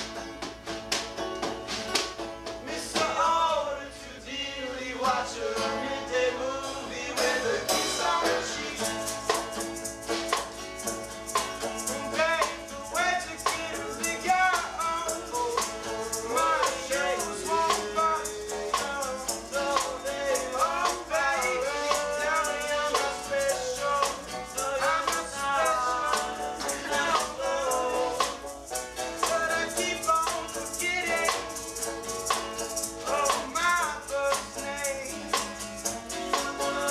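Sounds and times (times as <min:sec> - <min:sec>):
snare drum: 0:00.0 - 0:03.2, 0:07.2 - 0:12.7
shaker rhythm: 0:00.0 - 0:03.5, 0:05.0 - 0:36.9
banjo: 0:00.0 - 0:36.9
strummed acoustic guitar: 0:00.0 - 0:36.9.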